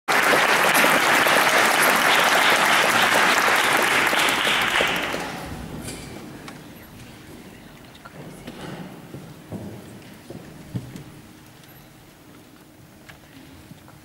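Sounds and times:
audience applauding: 0.1s - 5.6s.

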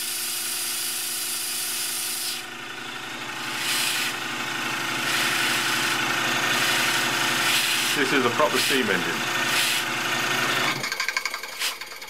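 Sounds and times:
model steam locomotive hissing: 0.0s - 2.5s, 3.4s - 4.2s, 5.0s - 10.4s, 11.3s - 12.0s.

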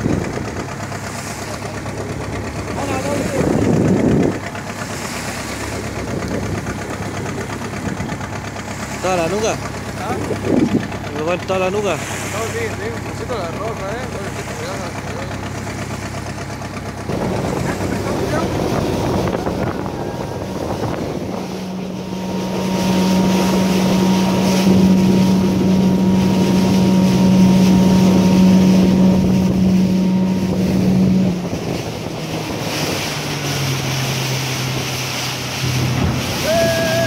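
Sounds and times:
outboard motor running: 0.0s - 37.0s
water rushing along hull: 0.0s - 37.0s
wind on microphone: 2.7s - 8.3s, 10.2s - 11.0s, 17.1s - 35.0s.

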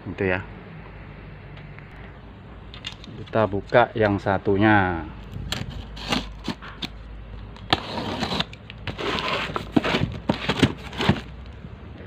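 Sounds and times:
blade slicing packing tape: 7.7s - 11.2s.

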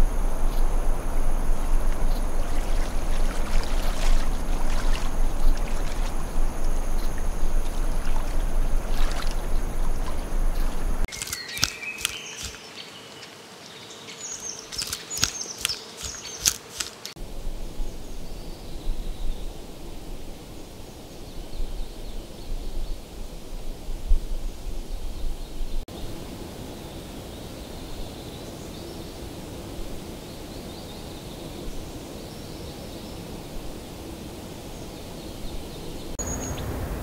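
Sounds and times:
running water: 0.0s - 17.2s
faint forest background: 0.0s - 37.0s
sharp clicks and high chirps: 10.5s - 12.8s, 14.4s - 17.2s.

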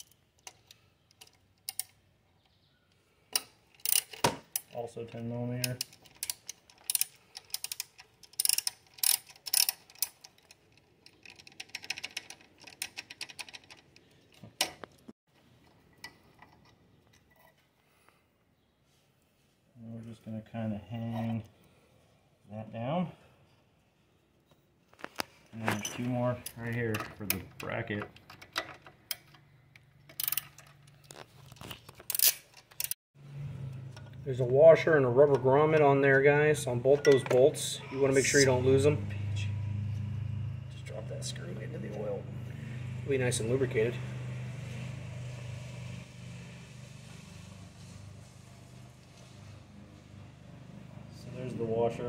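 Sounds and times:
small metal clicks: 0.0s - 4.8s, 5.6s - 17.6s, 24.9s - 33.0s
socket ratchet clicking: 5.8s - 10.4s.

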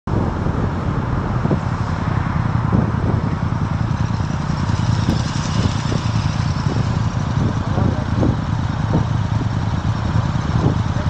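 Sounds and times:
motorcycle engine rumbling: 0.1s - 11.0s.

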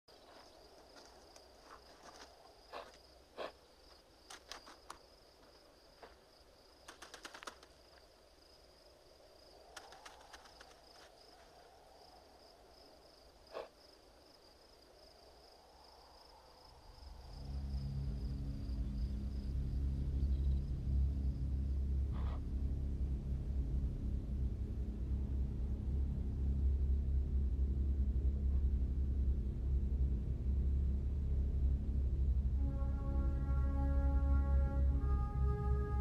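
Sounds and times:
insects chirring: 0.1s - 35.8s
low sustained musical note: 16.9s - 36.0s.

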